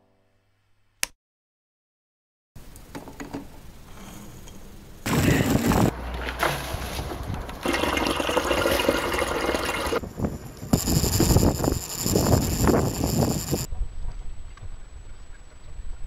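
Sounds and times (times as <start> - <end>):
loud rush of noise: 5.1 - 6.0
juice pouring into metal bowl: 7.6 - 10.0.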